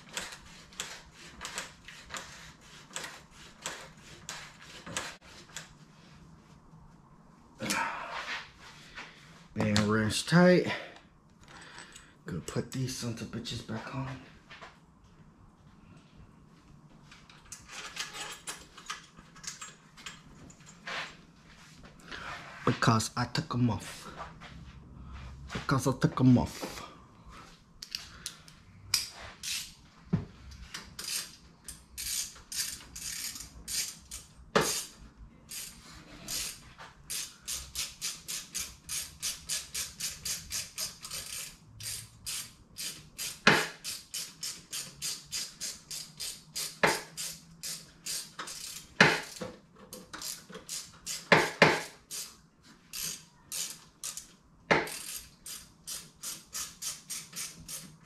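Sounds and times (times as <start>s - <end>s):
hand ratchet clicking: 0.0s - 5.7s, 27.8s - 29.7s, 30.7s - 58.0s.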